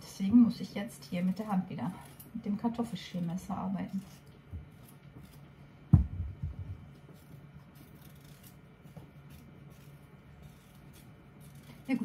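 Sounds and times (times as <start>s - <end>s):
steady low hum: 0.0s - 12.0s
knife scraping potato: 0.5s - 5.5s, 6.9s - 12.0s
sharp knock: 5.9s - 6.8s
soft thumps: 5.9s - 6.9s.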